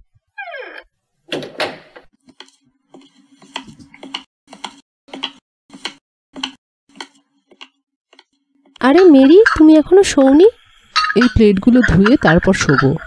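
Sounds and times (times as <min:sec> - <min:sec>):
door squeaking open: 0:00.3 - 0:02.0
door thudding shut: 0:01.3 - 0:02.0.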